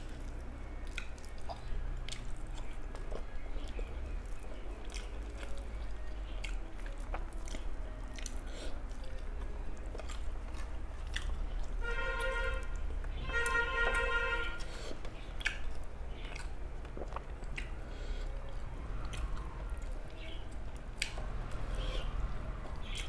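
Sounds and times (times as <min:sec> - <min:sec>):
person chewing food: 0:00.0 - 0:23.0
mouth clicks and smacks: 0:15.0 - 0:17.9.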